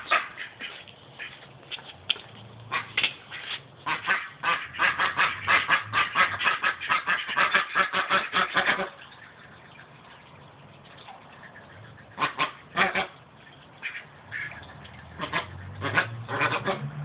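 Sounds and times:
ducks quacking: 0:00.0 - 0:01.4, 0:02.7 - 0:09.5, 0:11.4 - 0:13.2, 0:13.8 - 0:17.0.

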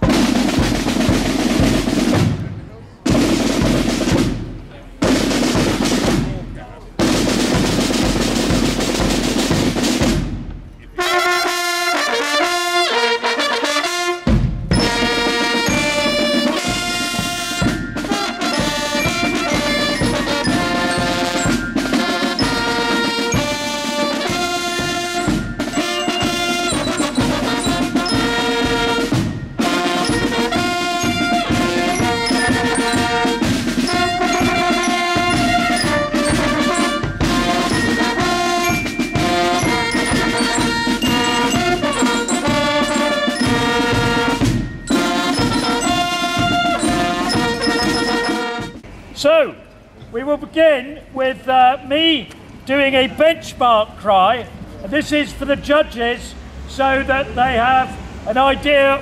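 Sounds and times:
drums playing: 0:00.0 - 0:11.2, 0:14.2 - 0:48.8
brass melody: 0:07.0 - 0:48.8.

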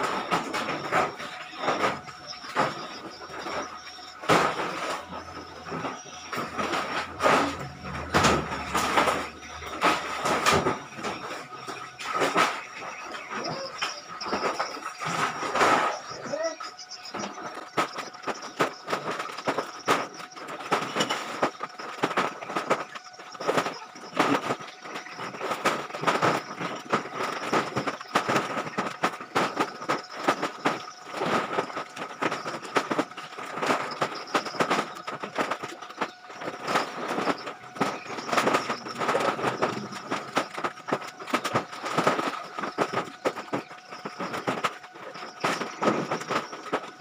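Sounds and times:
plastic sacks rustling and crackling: 0:00.0 - 0:47.0
steady high-pitched hum: 0:00.0 - 0:47.0
irregular knocks: 0:00.2 - 0:16.0.

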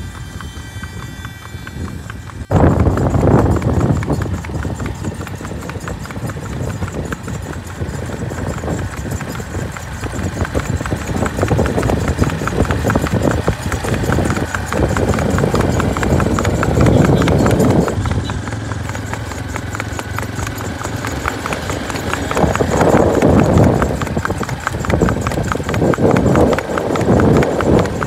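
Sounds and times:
horse hooves clip-clopping: 0:00.0 - 0:28.0.

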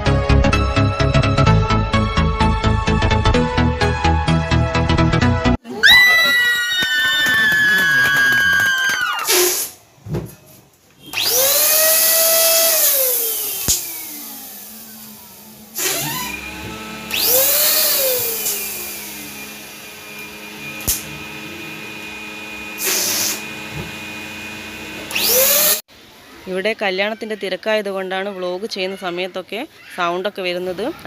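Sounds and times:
electric balloon pump whining: 0:06.7 - 0:09.8, 0:11.1 - 0:25.9.

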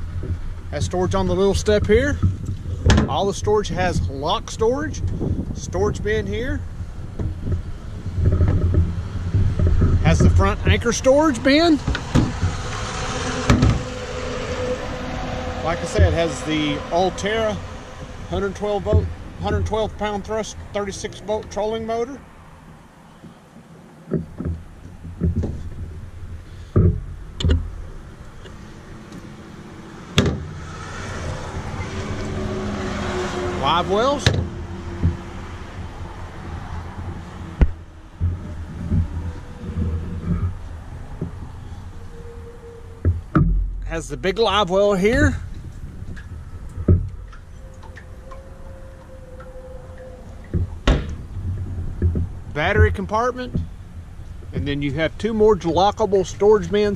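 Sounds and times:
hollow thumps on metal boat deck: 0:00.0 - 0:03.3, 0:06.8 - 0:20.4, 0:22.6 - 0:56.4
thump: 0:02.2 - 0:03.2, 0:11.8 - 0:12.6, 0:13.3 - 0:14.0, 0:30.2 - 0:30.6, 0:34.2 - 0:35.2, 0:43.0 - 0:43.9, 0:50.5 - 0:52.9.

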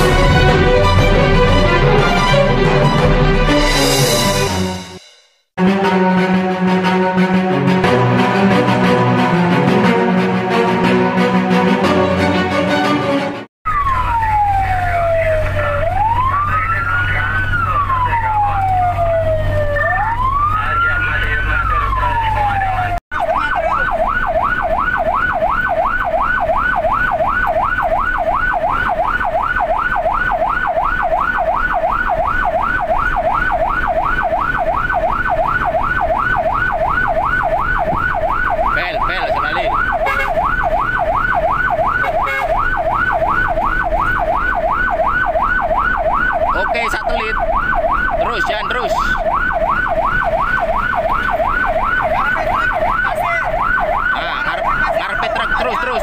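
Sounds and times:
engine and road rumble: 0:00.0 - 0:04.9, 0:13.7 - 0:56.0
electronic siren yelping: 0:13.7 - 0:56.0.

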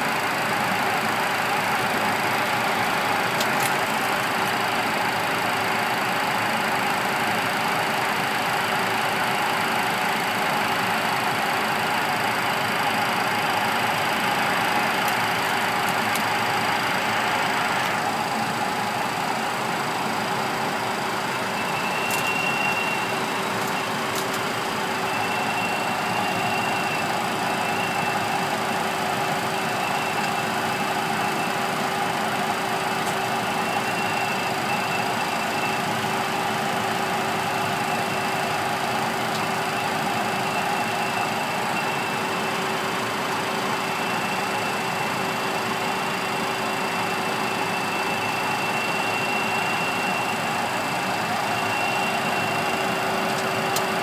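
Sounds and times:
engine drone: 0:00.0 - 0:54.0
faint high whine: 0:21.5 - 0:24.0, 0:39.7 - 0:54.0.

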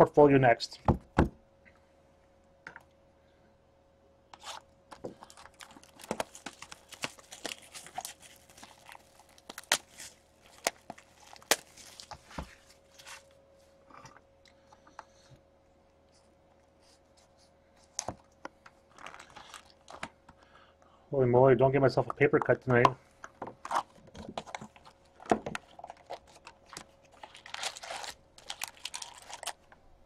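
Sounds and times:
faint steady hum: 0:00.0 - 0:30.0
wrapping tearing and crinkling: 0:04.4 - 0:13.3, 0:18.9 - 0:20.1, 0:23.6 - 0:29.8.

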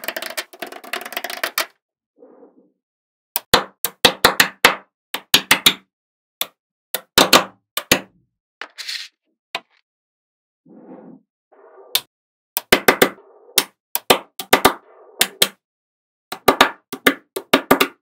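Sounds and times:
magnetic balls clicking together: 0:00.0 - 0:01.7.

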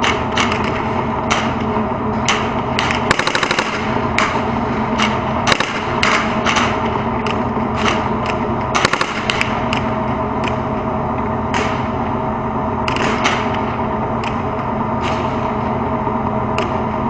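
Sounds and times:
tank diesel engine drone: 0:00.0 - 0:17.0
gunshots cracking: 0:02.8 - 0:04.4, 0:05.0 - 0:06.8, 0:08.7 - 0:09.7.

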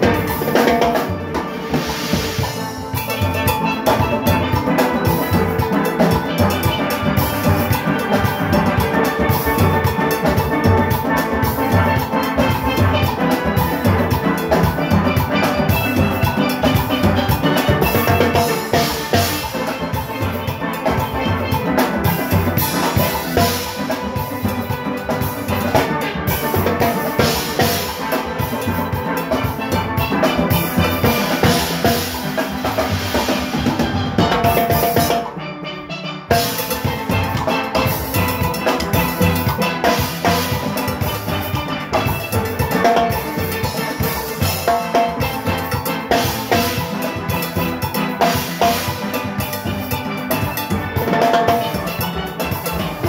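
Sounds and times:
drums timbales and cymbals: 0:00.0 - 0:53.0
steelpans playing: 0:00.0 - 0:53.0.

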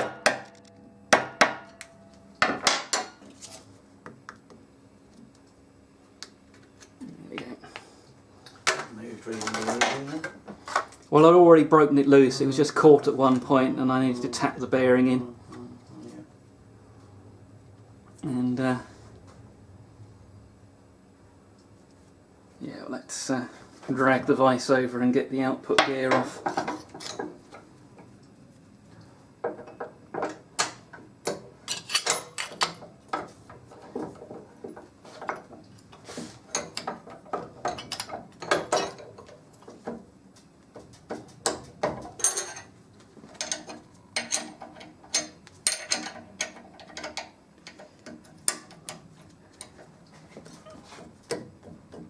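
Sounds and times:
metallic clicks and knocks: 0:43.4 - 0:49.9.

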